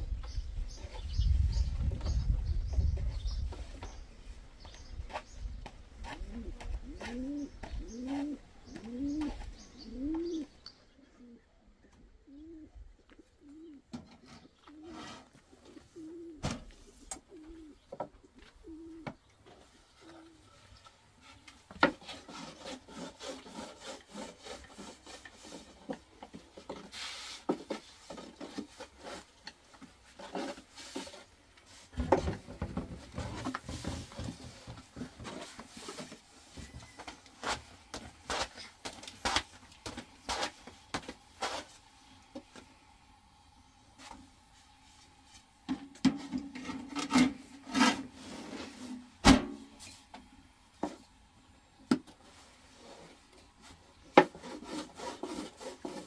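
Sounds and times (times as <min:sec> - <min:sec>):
pigeon cooing: 0:06.0 - 0:19.2, 0:20.0 - 0:20.6.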